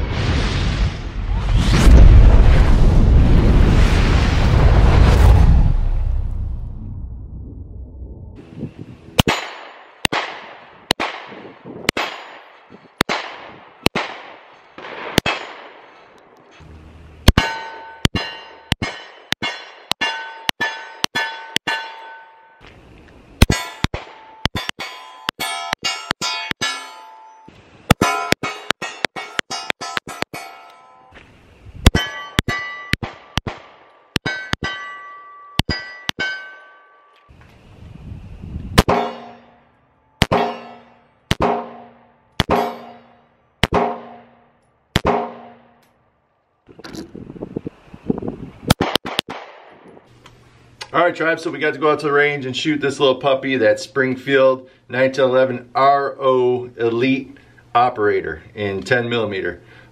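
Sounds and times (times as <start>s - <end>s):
pistol shots echoing: 9.2s - 15.8s, 40.2s - 44.3s, 45.0s - 45.6s
steel targets ringing: 17.3s - 22.6s, 23.4s - 31.2s, 31.9s - 33.0s, 34.2s - 37.2s, 38.8s - 45.8s.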